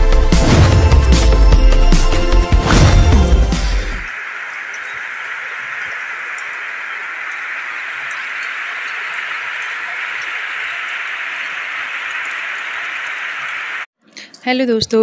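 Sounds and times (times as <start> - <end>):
heavy rain falling: 4.1 - 13.9.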